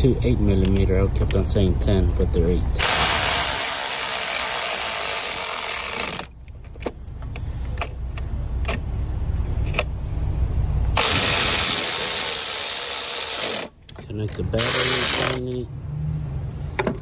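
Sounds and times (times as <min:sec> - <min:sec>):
cordless power ratchet whirring: 0:02.8 - 0:06.3, 0:11.0 - 0:13.8, 0:14.6 - 0:15.5.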